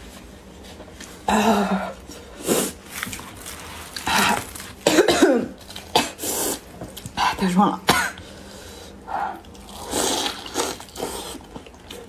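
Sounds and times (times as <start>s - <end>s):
woman coughing: 4.8s - 6.2s, 7.3s - 8.2s.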